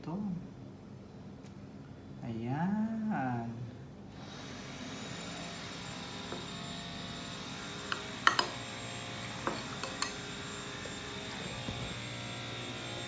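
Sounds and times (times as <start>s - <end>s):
steady hum: 0.0s - 13.0s
metal spoon clinking on glass: 7.9s - 8.6s, 9.5s - 10.3s.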